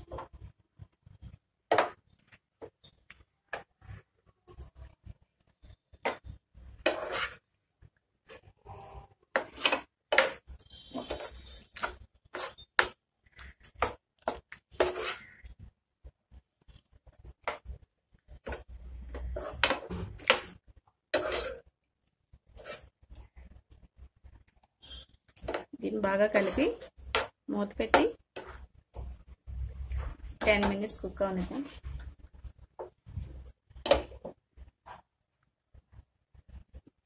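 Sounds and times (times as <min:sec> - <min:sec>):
metal spatula scraping frying pan: 0:06.0 - 0:07.5, 0:08.3 - 0:15.5, 0:18.5 - 0:20.5, 0:21.1 - 0:21.6, 0:22.5 - 0:23.0, 0:24.9 - 0:27.3.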